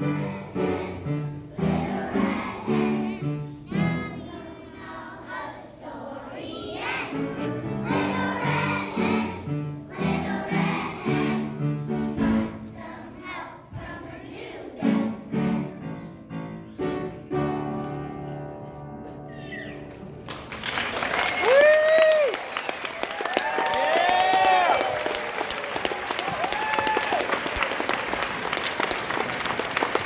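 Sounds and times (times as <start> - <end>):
children's choir singing: 0.0 - 18.6.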